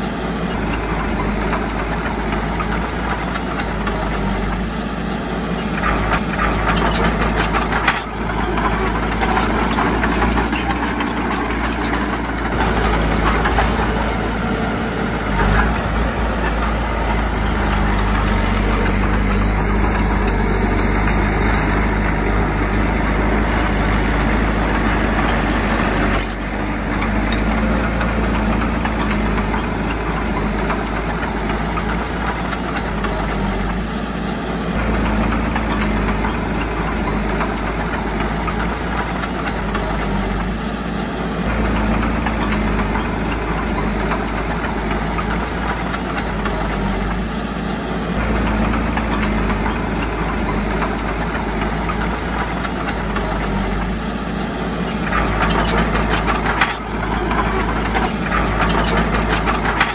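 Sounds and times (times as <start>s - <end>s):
bulldozer diesel engine running: 0.0s - 59.9s.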